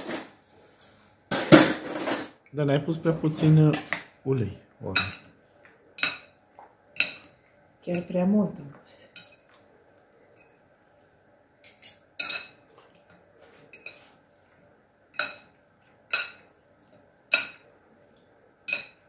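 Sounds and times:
metal utensil clinking on bowl: 0:07.0 - 0:08.3, 0:11.7 - 0:12.6, 0:15.2 - 0:16.5, 0:17.3 - 0:17.7, 0:18.6 - 0:19.0.

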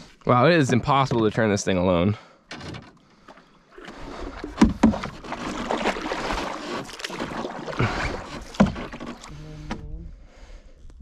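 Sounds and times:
paddle splashing through water: 0:03.1 - 0:09.8.

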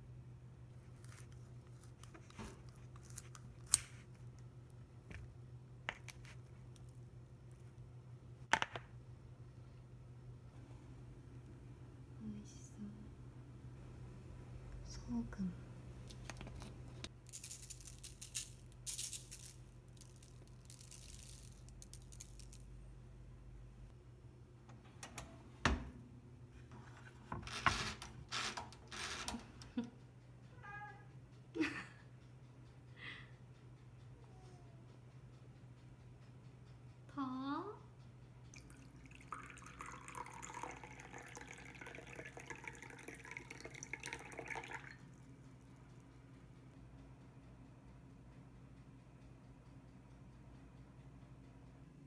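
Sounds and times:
salt shaker rattling: 0:17.2 - 0:22.8
tea pouring into teacup: 0:38.6 - 0:45.1.

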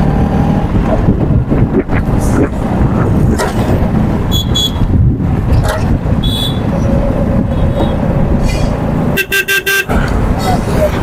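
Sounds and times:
traffic engines and road noise: 0:00.0 - 0:11.0
vehicle horn honking: 0:04.3 - 0:04.9, 0:06.2 - 0:06.7, 0:09.2 - 0:10.0.

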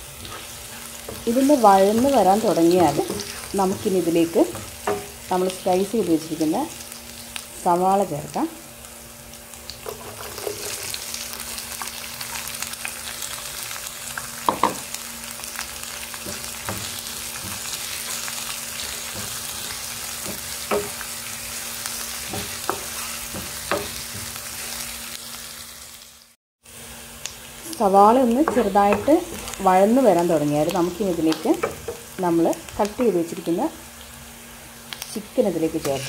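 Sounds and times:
vegetables sizzling in hot oil: 0:00.0 - 0:36.0
wooden spatula knocking on pan: 0:01.9 - 0:05.1, 0:14.5 - 0:14.8, 0:20.2 - 0:21.0, 0:22.3 - 0:24.4, 0:28.4 - 0:29.4.

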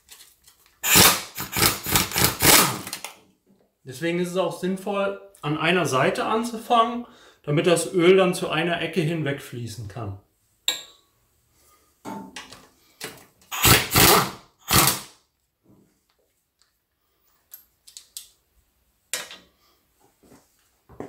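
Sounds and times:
pneumatic impact wrench bursts: 0:00.8 - 0:03.0, 0:13.5 - 0:15.2.

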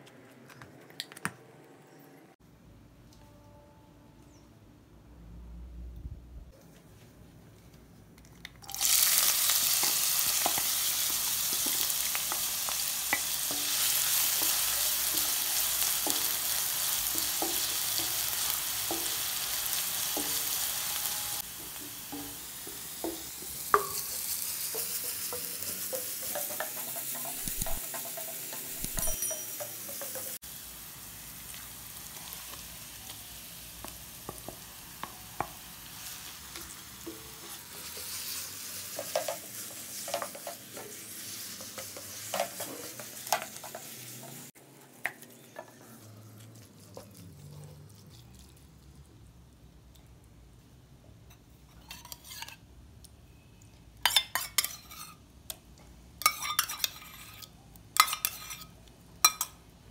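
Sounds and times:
onion sizzling in hot oil: 0:08.6 - 0:45.5.

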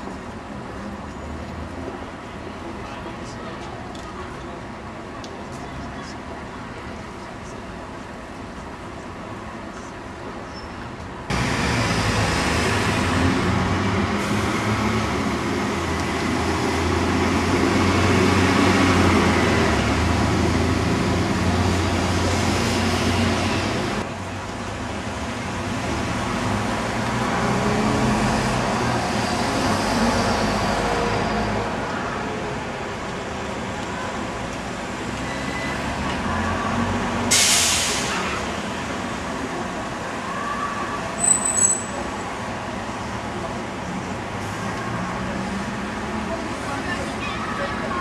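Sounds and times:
diesel bus engine passing: 0:11.3 - 0:40.3.

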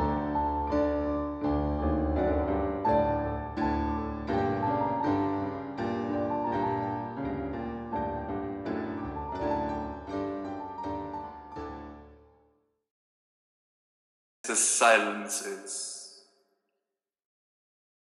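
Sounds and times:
slow piano music: 0:00.0 - 0:12.6.

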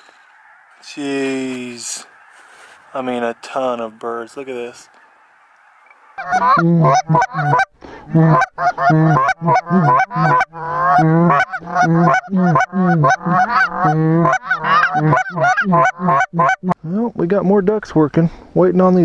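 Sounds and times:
goose calls honking and clucking: 0:00.3 - 0:03.1, 0:04.6 - 0:16.8.

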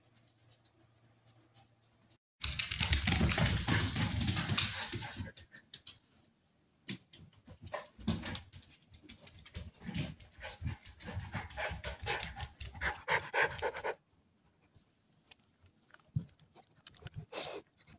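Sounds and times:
dog panting: 0:09.9 - 0:14.0.

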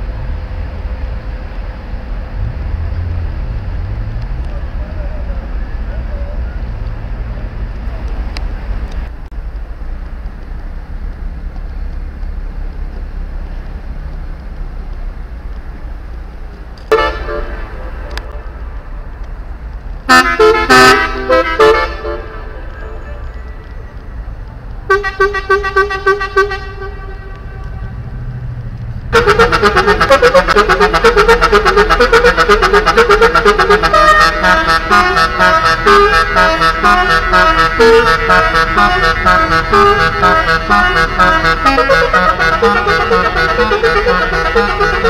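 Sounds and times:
steady low rumble: 0:07.6 - 0:20.1
ship horns sounding: 0:16.8 - 0:19.2, 0:20.0 - 0:23.8, 0:24.8 - 0:28.3, 0:29.1 - 0:45.0.

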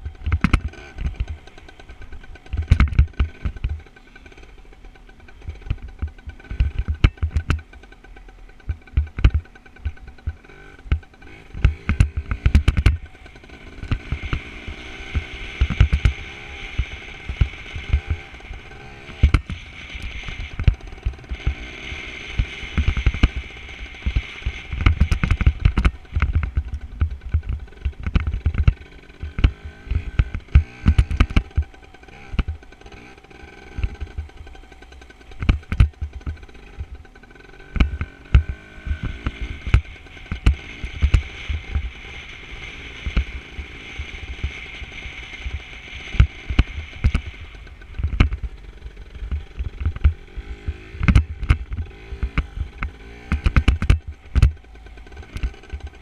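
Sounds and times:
dirt bike engine: 0:00.0 - 0:56.0
thumps on microphone: 0:35.4 - 0:37.0, 0:47.9 - 0:48.5, 0:49.3 - 0:54.6.

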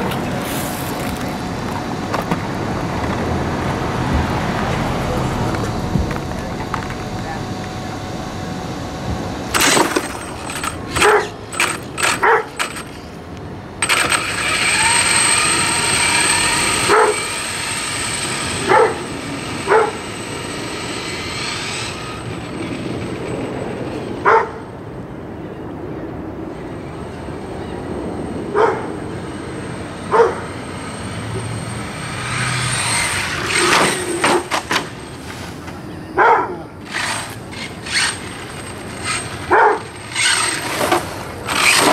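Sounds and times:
toy truck motor whining: 0:09.5 - 0:13.1, 0:13.8 - 0:24.0, 0:30.4 - 0:34.6, 0:36.8 - 0:41.9
dog barking: 0:12.2 - 0:12.5, 0:16.9 - 0:17.2, 0:18.7 - 0:19.0, 0:24.2 - 0:24.6, 0:28.6 - 0:28.9, 0:30.1 - 0:30.4, 0:36.2 - 0:36.6, 0:39.5 - 0:39.9.

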